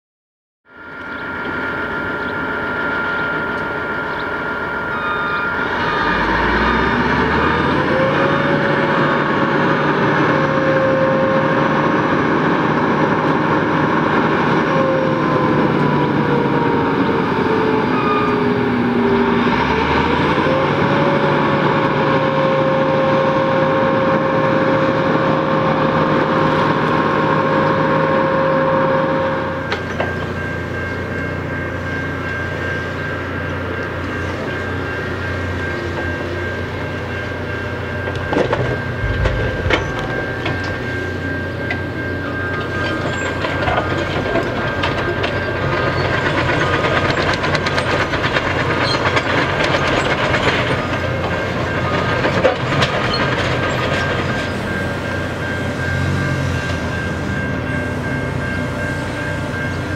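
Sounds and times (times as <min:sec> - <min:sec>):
diesel locomotive engine: 0:00.6 - 0:59.9
rumble of train wheels: 0:00.7 - 0:59.9.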